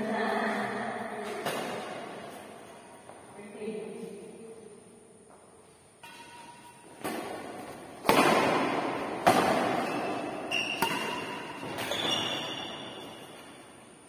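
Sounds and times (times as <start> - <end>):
racket hitting shuttlecock: 1.2 - 2.5, 6.0 - 13.6
short high squeaks: 9.8 - 13.6.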